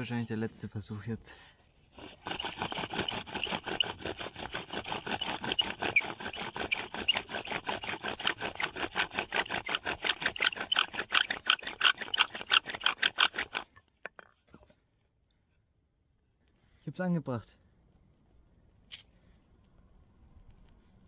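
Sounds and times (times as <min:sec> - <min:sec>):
bow drill spindle squeaking: 0:04.8 - 0:13.7.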